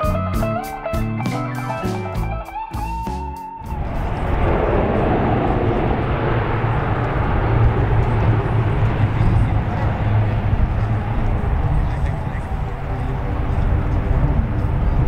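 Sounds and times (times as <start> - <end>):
guitar background music: 0.0 - 3.9, 12.4 - 15.0
aircraft engine rumble: 3.6 - 15.0
low hum: 3.6 - 15.0.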